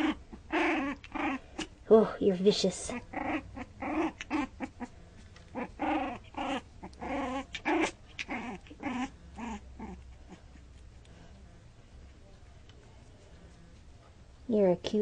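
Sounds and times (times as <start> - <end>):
puppy growling and yipping: 0.0 - 1.8, 2.8 - 11.7.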